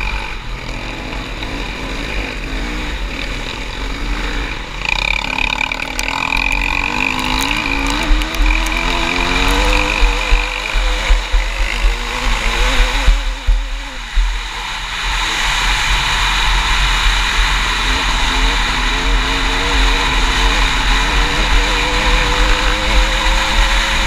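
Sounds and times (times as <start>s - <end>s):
quad bike engine running: 0.0s - 24.0s
wind buffeting microphone: 6.3s - 24.0s.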